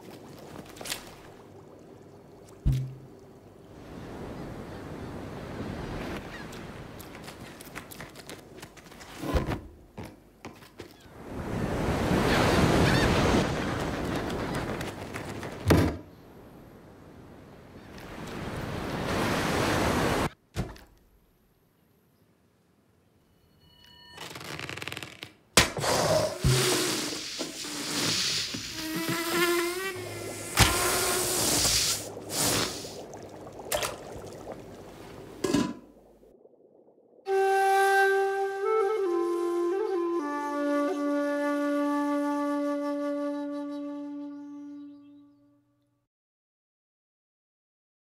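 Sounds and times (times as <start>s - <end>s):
sharp thump: 2.6s - 3.0s
ocean waves hissing: 25.8s - 36.1s.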